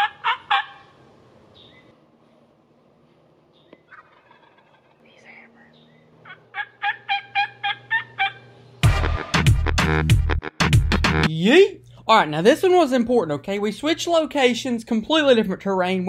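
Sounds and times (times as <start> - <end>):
turkey yelps: 0.0 - 1.0, 3.9 - 5.0, 6.2 - 8.6
loud music with hard beat: 8.8 - 11.3.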